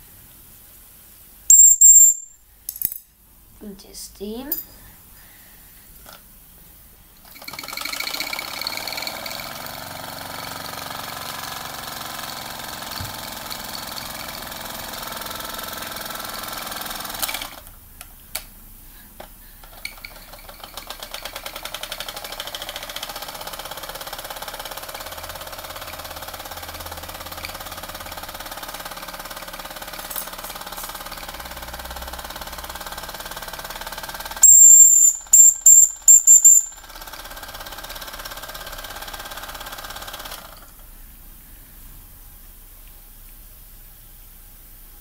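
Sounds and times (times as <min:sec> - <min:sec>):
toy steam engine chuffing: 0:07.2 - 0:17.7, 0:19.0 - 0:40.7.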